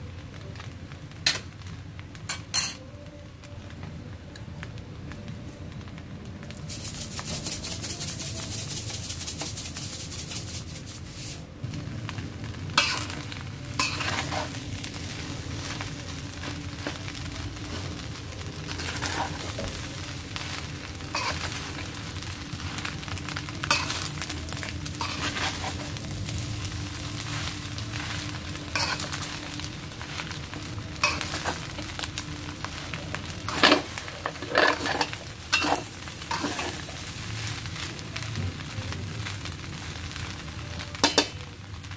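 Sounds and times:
fried rice sizzling in a pan: 0.0s - 41.9s
metal spatula scraping a pan: 12.8s - 14.6s, 18.7s - 19.7s, 21.1s - 21.8s, 25.0s - 26.0s, 28.0s - 29.3s, 31.0s - 31.8s, 33.5s - 37.0s.

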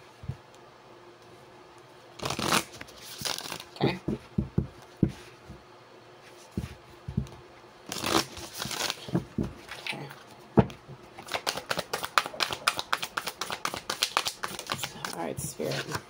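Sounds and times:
cards being shuffled: 2.2s - 4.0s, 7.9s - 10.0s, 11.2s - 16.0s
cards knocking and rustling: 6.5s - 9.9s, 10.6s - 16.0s.

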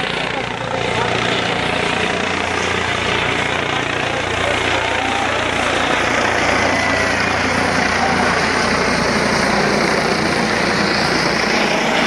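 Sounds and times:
crowd voices: 0.0s - 12.0s
helicopter rotor and turbine: 0.0s - 12.0s.

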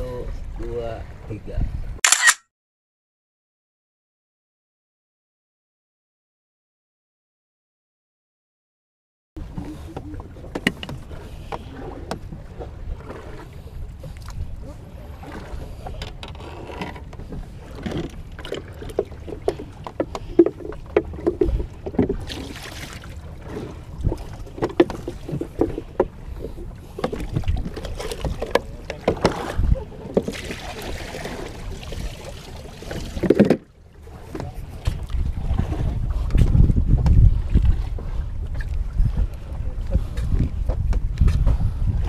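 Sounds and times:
wind rumble on microphone: 0.0s - 2.0s, 9.4s - 22.5s, 23.2s - 32.2s, 33.0s - 42.0s.

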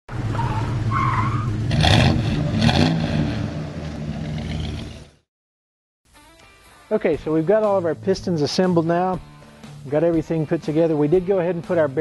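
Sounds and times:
car engine revving: 0.1s - 5.2s
tyre squeal: 0.3s - 1.6s.

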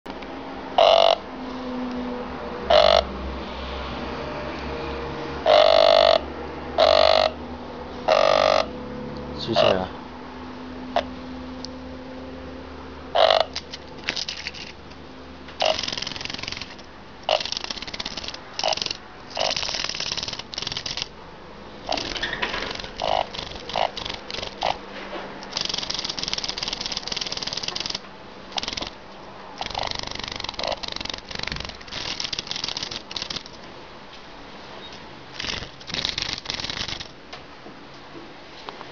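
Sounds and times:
cicada buzzing: 0.8s - 1.3s, 2.7s - 3.1s, 5.4s - 7.4s, 8.1s - 8.8s, 13.1s - 14.8s, 15.6s - 21.2s, 21.8s - 29.0s, 29.6s - 33.6s, 35.3s - 37.1s.

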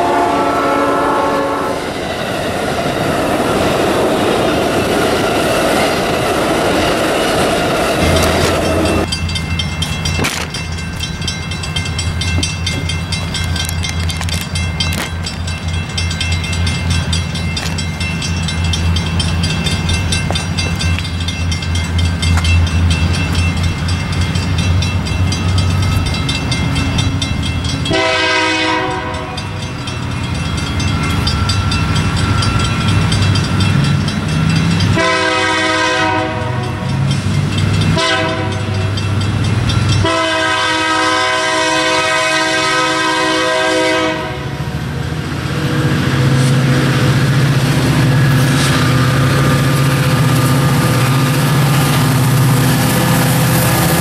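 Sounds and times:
train air horn blasts: 0.0s - 1.8s, 27.9s - 29.5s, 35.0s - 36.7s, 38.0s - 38.7s, 40.0s - 44.6s
diesel locomotive engine drone: 0.0s - 54.0s.

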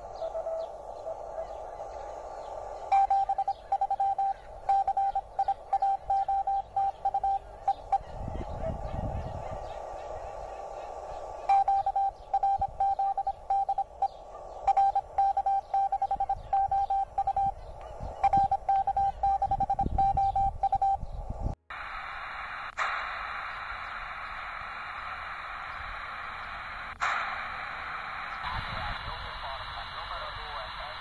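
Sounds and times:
shortwave band hiss: 0.0s - 20.0s, 21.0s - 31.0s
morse code beeps: 2.9s - 8.1s, 11.5s - 17.6s, 18.2s - 21.0s.

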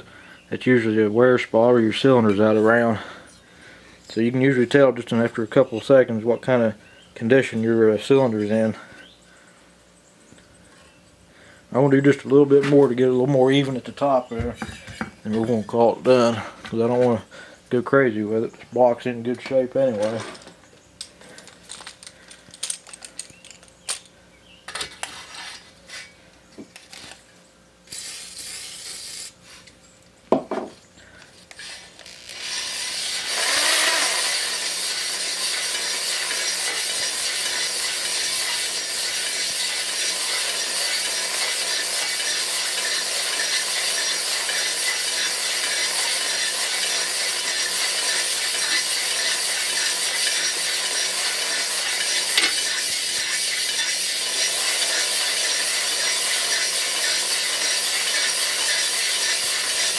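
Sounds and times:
drill running: 31.5s - 59.9s
hone stones scraping cylinder wall: 31.5s - 59.9s.

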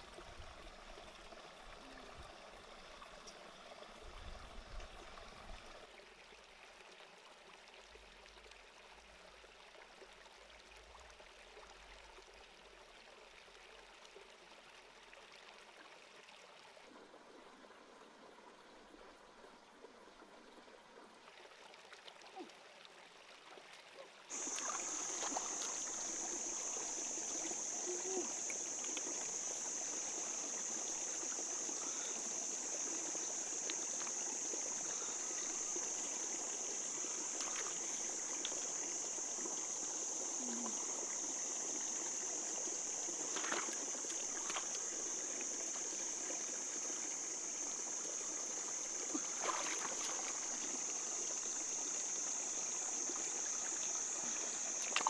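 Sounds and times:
light knocks or splashes: 24.3s - 25.9s, 43.3s - 44.8s, 49.1s - 50.6s, 54.8s - 55.0s
high-pitched hiss: 24.3s - 55.0s
stream water rushing: 24.3s - 55.0s.

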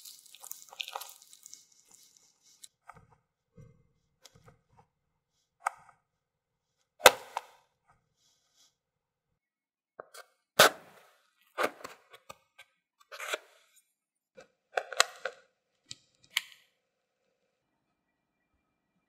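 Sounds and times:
crisp pastry crunching: 0.0s - 2.7s.

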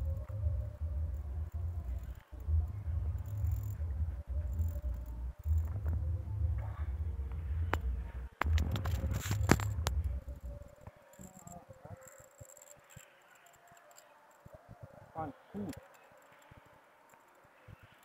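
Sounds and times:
faint insect chirping: 0.0s - 5.9s, 9.6s - 14.7s
low rumble on microphone: 0.0s - 10.8s.

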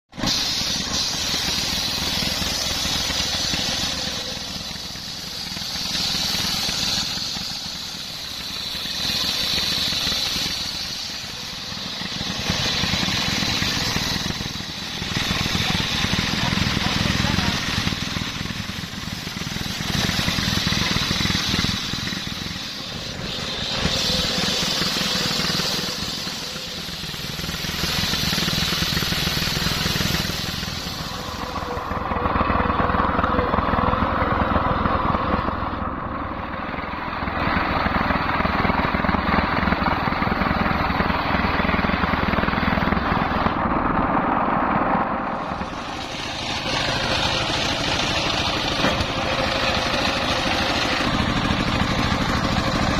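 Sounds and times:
diesel engine running: 0.0s - 52.9s
circular saw ripping logs: 0.2s - 35.5s, 37.6s - 52.9s.

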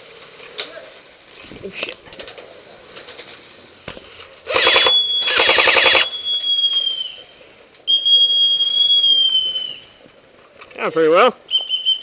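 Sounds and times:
airsoft gun bursts: 4.4s - 6.3s
long high whistle blast: 4.5s - 10.0s, 11.5s - 12.0s.

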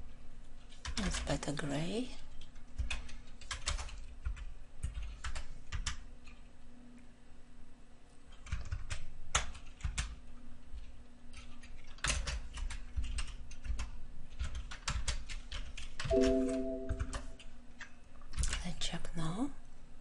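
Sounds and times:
typing on computer keyboard: 0.6s - 1.3s, 2.3s - 6.5s, 8.3s - 18.6s
short steady tone: 16.1s - 17.4s.

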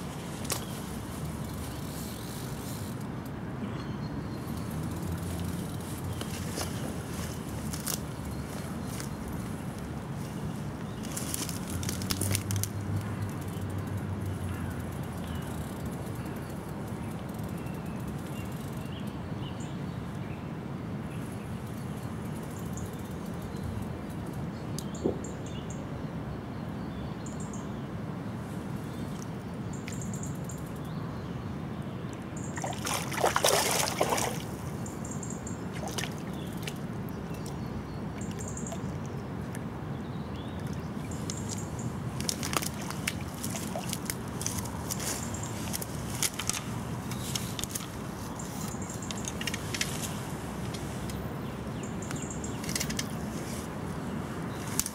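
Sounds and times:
river water running: 0.0s - 18.8s, 27.5s - 54.9s
water splash: 32.6s - 34.6s.

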